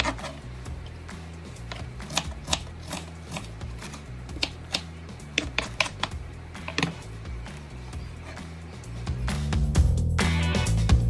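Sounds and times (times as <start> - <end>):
background music with bass line: 0.0 - 11.0
knife chopping on cutting board: 1.7 - 7.0.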